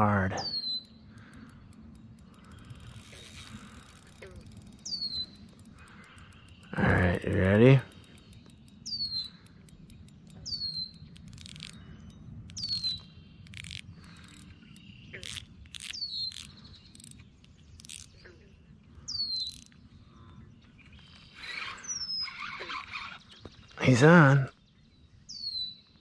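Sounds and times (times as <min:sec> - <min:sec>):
sharp clicks: 0:00.6 - 0:18.3.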